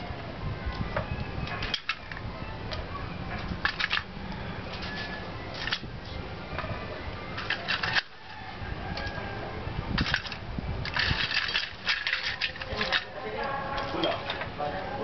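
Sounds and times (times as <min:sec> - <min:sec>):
charcoal clinking against metal: 0:07.4 - 0:08.1, 0:10.0 - 0:14.5.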